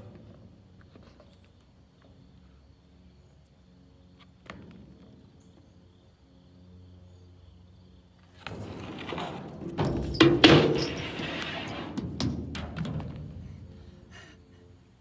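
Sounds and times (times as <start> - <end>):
skateboard wheels rolling on ramp: 8.2 - 13.8
skateboard clacks and thumps: 8.4 - 13.4.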